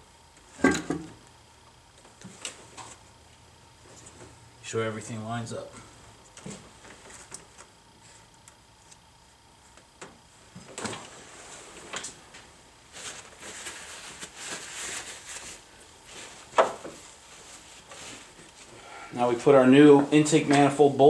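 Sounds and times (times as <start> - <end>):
rustling and scraping: 10.4 - 19.0.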